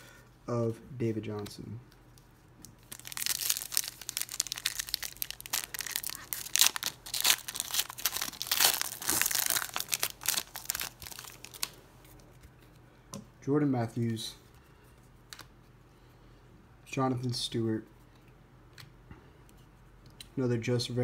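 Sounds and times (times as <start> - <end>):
foil wrappers crinkling and tearing: 2.7 - 11.8.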